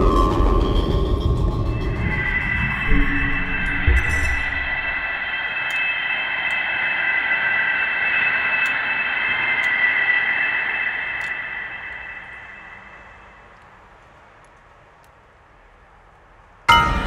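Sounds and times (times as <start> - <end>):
high held tones: 1.8 - 13.6.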